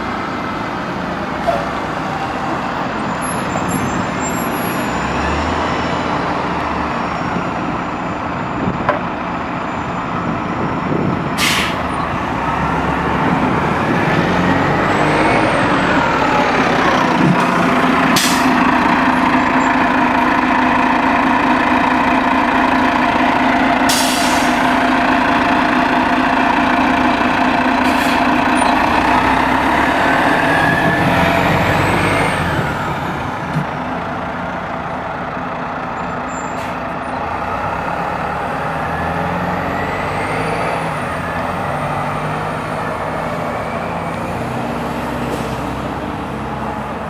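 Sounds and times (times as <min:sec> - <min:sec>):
bus diesel engine running: 0:00.0 - 0:47.0.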